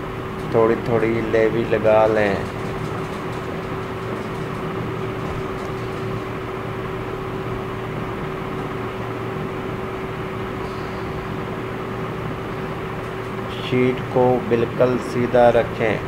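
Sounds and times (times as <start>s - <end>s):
steady mid-pitched tone: 9.9s - 15.8s.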